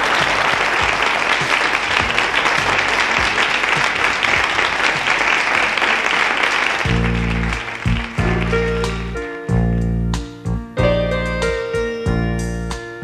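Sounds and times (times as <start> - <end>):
audience applause: 0.0 - 9.3.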